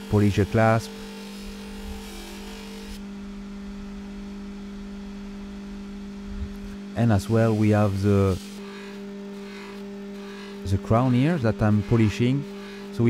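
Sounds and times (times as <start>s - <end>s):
metal rubbing on polishing wheel: 0.0s - 3.0s, 7.0s - 13.0s
polishing machine motor humming: 0.0s - 13.0s.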